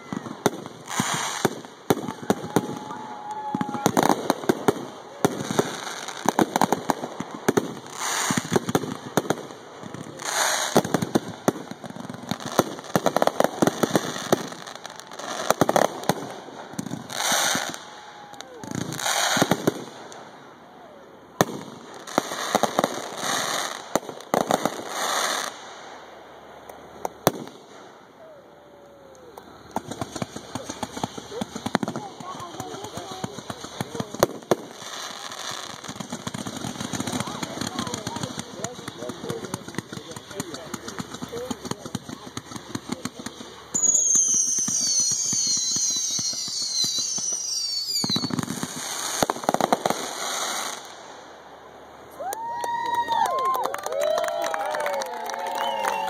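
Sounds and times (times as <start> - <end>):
firework pops and crackling: 0.0 - 20.3, 21.4 - 25.9, 26.6 - 28.0, 28.8 - 51.3, 52.2 - 56.0.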